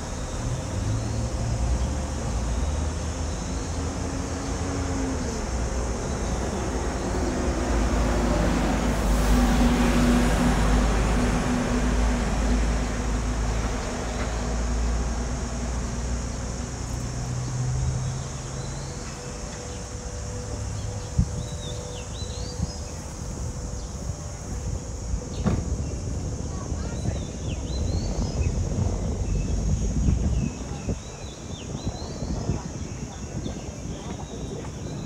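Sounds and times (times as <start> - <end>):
vehicle engine passing: 0.3 - 21.9.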